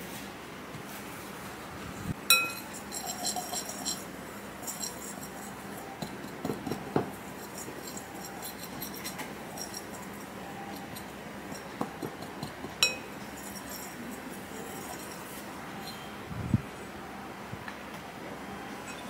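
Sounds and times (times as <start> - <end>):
whisk clinking against glass bowl: 2.3 - 16.1.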